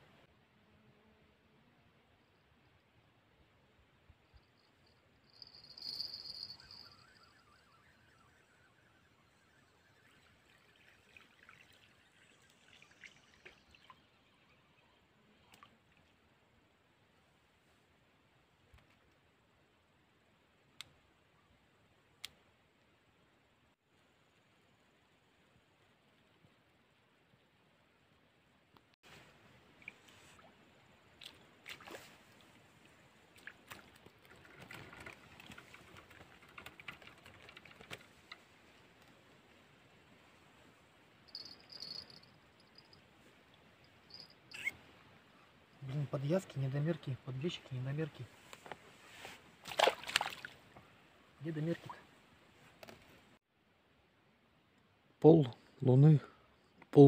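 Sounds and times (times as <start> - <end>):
faint small clicks and crackles: 33.4 - 39.3.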